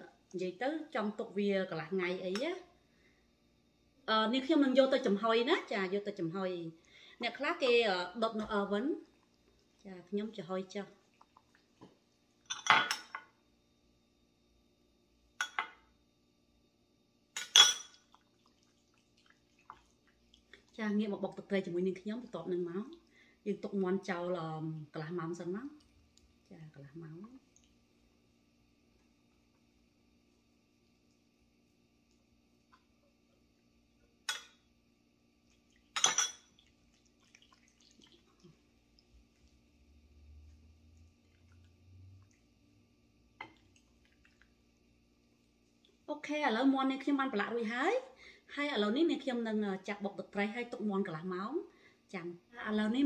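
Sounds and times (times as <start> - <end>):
metal spoon clinking glass bowl: 12.5 - 13.3, 15.4 - 15.8, 17.4 - 18.0, 36.0 - 36.5.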